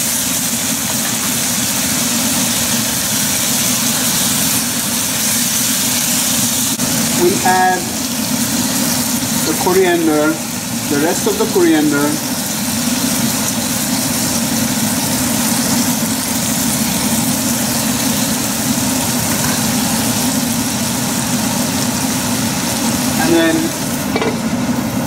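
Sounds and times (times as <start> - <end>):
food frying in a pan: 0.0 - 25.0.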